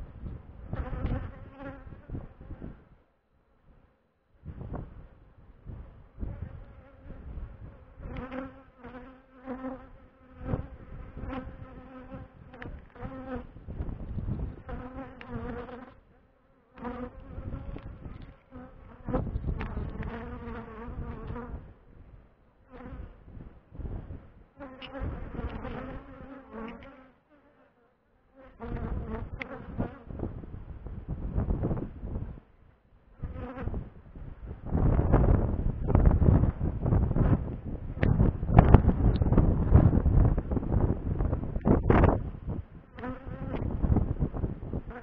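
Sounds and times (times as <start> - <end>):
wind rumbling on microphone: 0.0 - 3.0, 4.4 - 16.0, 16.8 - 26.9, 28.6 - 45.0
honeybees buzzing: 6.2 - 21.7, 24.5 - 30.2, 42.9 - 43.7.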